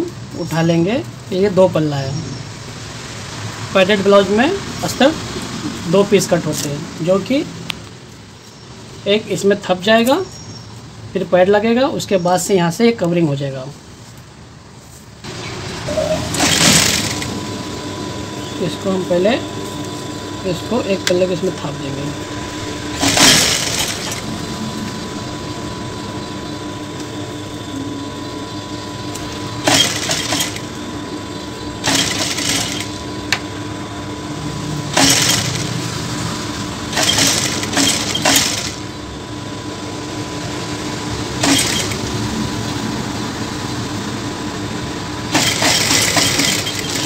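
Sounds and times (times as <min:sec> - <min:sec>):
sewing machine motor humming: 0:15.3 - 0:42.6, 0:45.2 - 0:47.0
sewing machine stitching: 0:15.9 - 0:17.4, 0:22.9 - 0:24.4, 0:29.2 - 0:30.7, 0:31.8 - 0:33.0, 0:34.9 - 0:35.8, 0:36.9 - 0:38.9, 0:41.4 - 0:42.2, 0:45.3 - 0:47.0.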